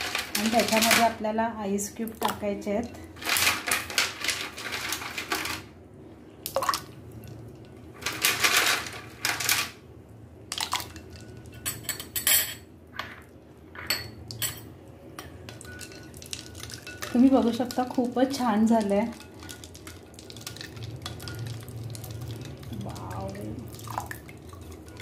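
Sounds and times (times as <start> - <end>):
ice cubes clinking in glass bowl: 0.0 - 1.2.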